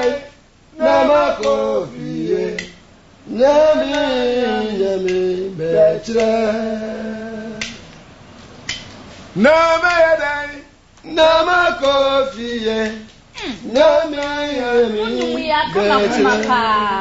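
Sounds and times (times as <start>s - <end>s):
person singing long sliding notes: 0.0s - 2.7s, 3.3s - 7.7s, 13.4s - 17.0s.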